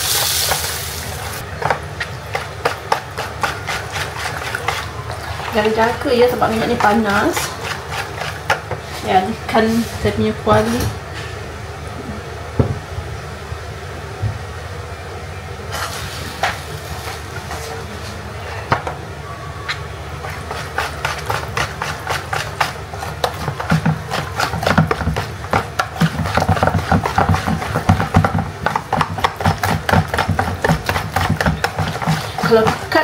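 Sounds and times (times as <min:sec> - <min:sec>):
whisk beating batter in plastic bowl: 0:01.6 - 0:09.8, 0:20.2 - 0:33.0.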